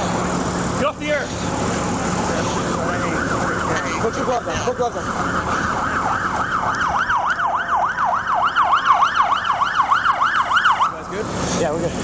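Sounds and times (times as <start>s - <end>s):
siren fast yelp: 2.9s - 11.0s.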